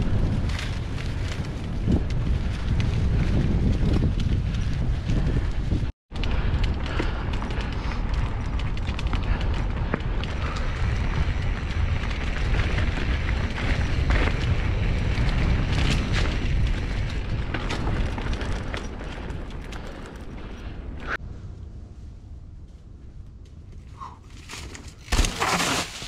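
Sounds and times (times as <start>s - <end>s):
bike rattling and clicking: 0.0s - 21.2s
wind buffeting: 0.0s - 25.0s
tyre noise on dirt: 24.1s - 26.0s.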